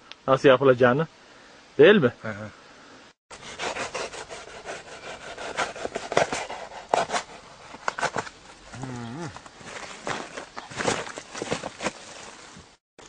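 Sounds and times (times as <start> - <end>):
hands rubbing and scraping ground: 3.4 - 12.8
short vocal sound: 8.7 - 9.4.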